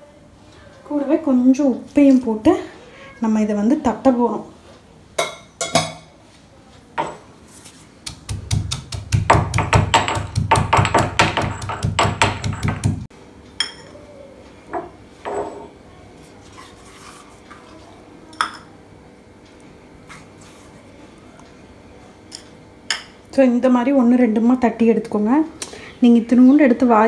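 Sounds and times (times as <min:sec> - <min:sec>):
stone pestle pounding in mortar: 0:08.0 - 0:13.1.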